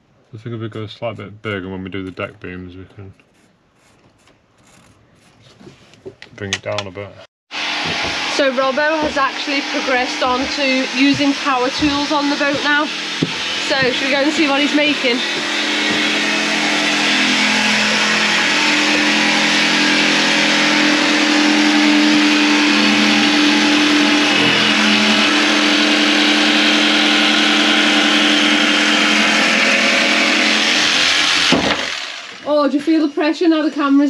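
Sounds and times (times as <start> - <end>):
jigsaw cutting a board: 7.6 - 32.6.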